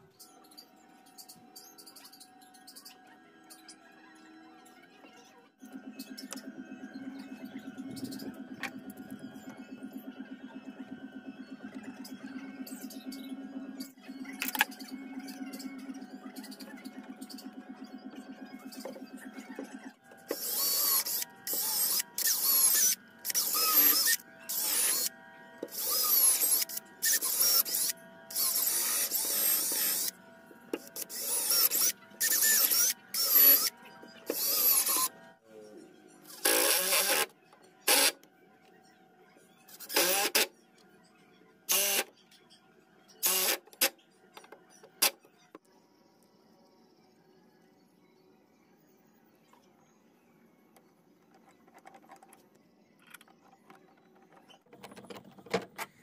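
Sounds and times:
faint background music: 0.0 - 56.0
cordless drill boring into wood: 20.3 - 25.1, 25.7 - 30.1, 30.8 - 33.7, 34.3 - 35.1, 36.3 - 37.2, 39.8 - 40.4, 41.7 - 42.1, 43.2 - 43.6.

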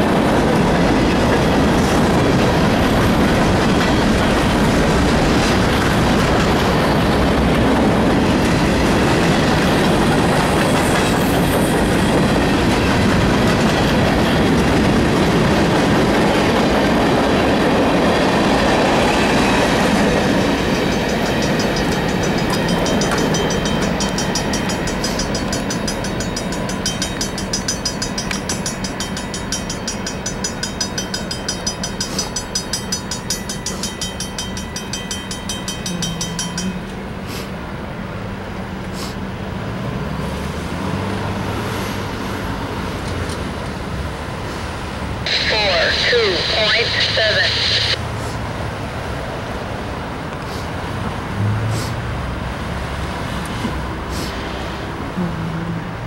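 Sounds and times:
freight train wheels clattering on rails: 0.0 - 37.3.

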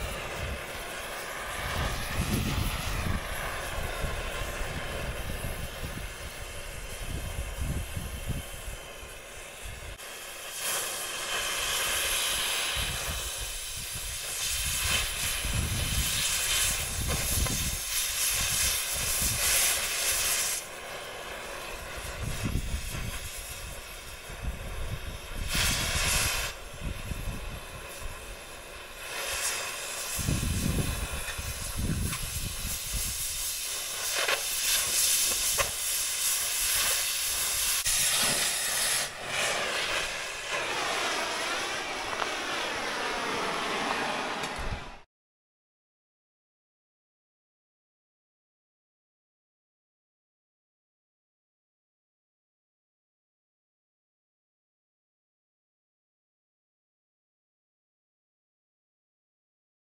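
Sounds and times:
low gusty rumbling: 0.0 - 10.0, 30.2 - 33.4
cutting torch hissing: 0.0 - 45.1.

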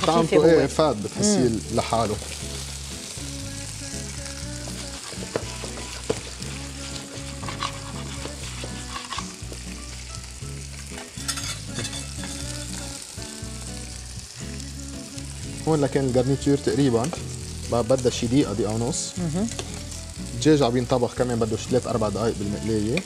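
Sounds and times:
food sizzling in frying pans: 0.0 - 23.0
metal spoon stirring vegetables: 4.7 - 10.0, 10.6 - 13.1, 19.5 - 19.9
spoon tapping on pan: 5.2 - 6.2.

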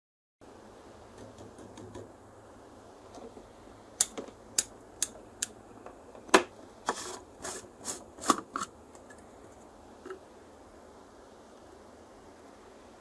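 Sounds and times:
rubbing scrapes: 6.8 - 8.7.

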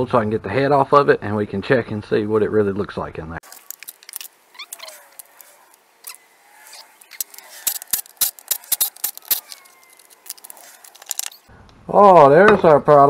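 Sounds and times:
metal parts and tools clinking: 3.4 - 11.5
sharp clicks: 3.4 - 11.5.

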